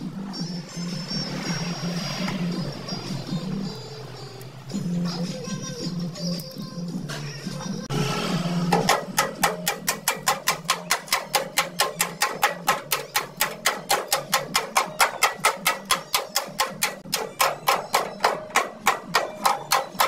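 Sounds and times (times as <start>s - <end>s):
hammering on steel panel: 8.7s - 20.0s.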